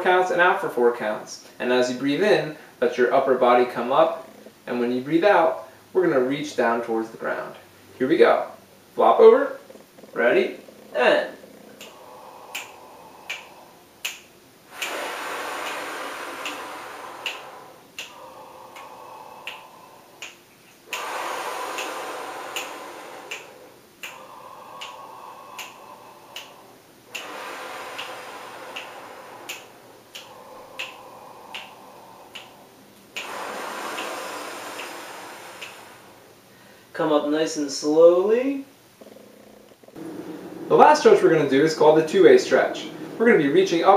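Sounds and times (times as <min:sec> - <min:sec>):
person breathing deeply: 0:03.6 - 0:04.8, 0:09.5 - 0:37.0, 0:39.0 - 0:43.9
steady metronome clicks: 0:11.7 - 0:36.0.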